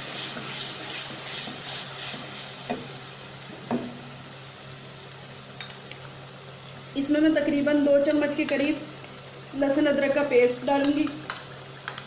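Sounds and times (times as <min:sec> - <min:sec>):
wooden spoon stirring: 0:00.0 - 0:02.9
masala sizzling in oil: 0:00.0 - 0:12.0.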